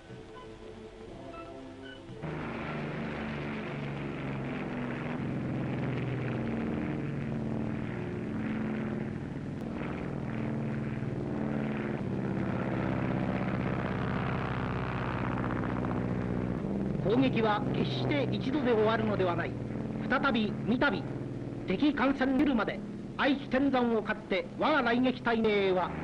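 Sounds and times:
propeller aircraft engine running: 0:00.0 - 0:26.0.

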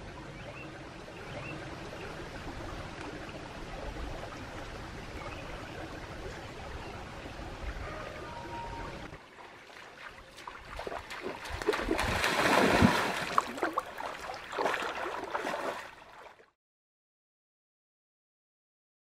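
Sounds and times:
stream water splashing: 0:00.6 - 0:07.7, 0:09.0 - 0:16.6.

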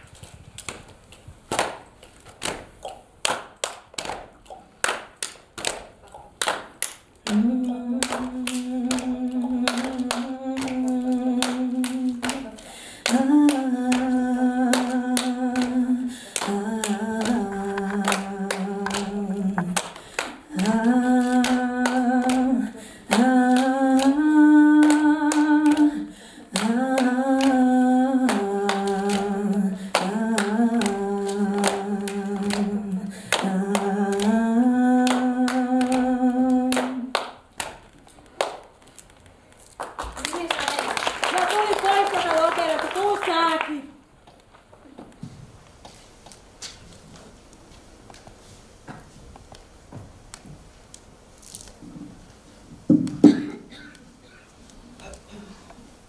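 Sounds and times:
rhythmic hand clapping: 0:00.6 - 0:43.9
person singing unaccompanied: 0:07.2 - 0:37.1.

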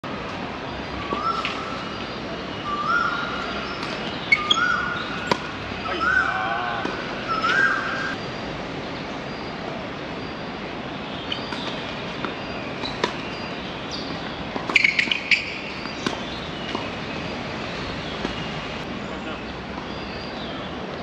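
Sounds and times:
distant traffic hum: 0:00.0 - 0:21.0
tennis ball knocks: 0:14.0 - 0:17.0.

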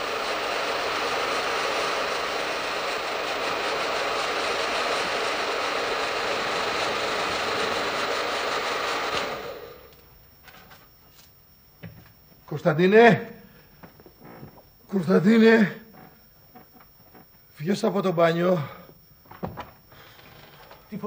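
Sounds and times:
hair dryer blowing: 0:00.0 - 0:10.0.

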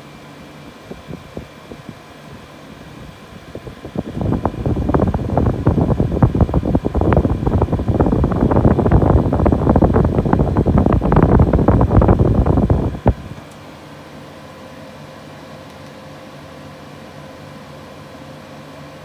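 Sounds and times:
air conditioner fan hum: 0:00.0 - 0:19.0
gusty wind noise on microphone: 0:00.9 - 0:13.4.

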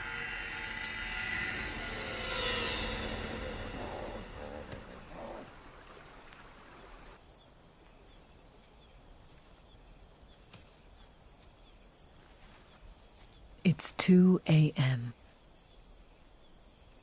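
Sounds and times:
crickets chirping: 0:00.0 - 0:17.0.

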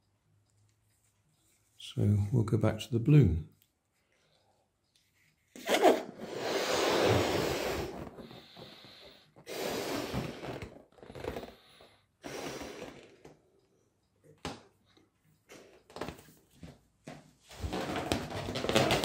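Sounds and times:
person blowing up a balloon: 0:05.6 - 0:13.4.

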